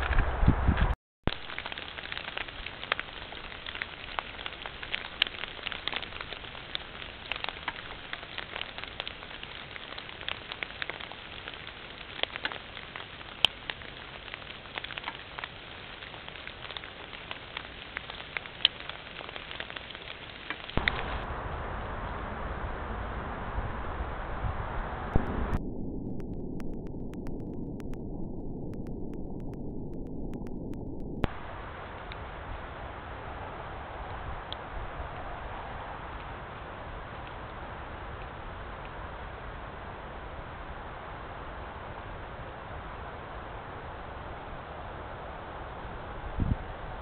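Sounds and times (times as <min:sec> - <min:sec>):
small crackles and ticks: 0:00.0 - 0:21.3, 0:26.2 - 0:47.0
microphone hiss: 0:20.3 - 0:25.6, 0:31.2 - 0:47.0.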